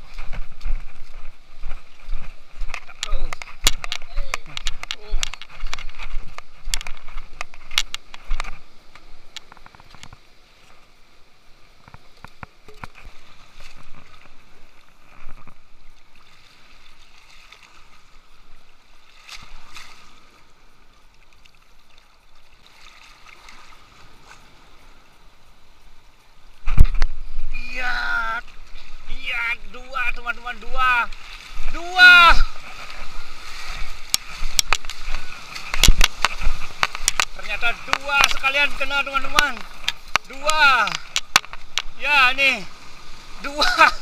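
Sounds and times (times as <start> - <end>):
small clicks and knocks: 2.7 - 10.3, 34.1 - 38.4, 39.3 - 41.9
sea water washing against rocks: 26.5 - 44.0.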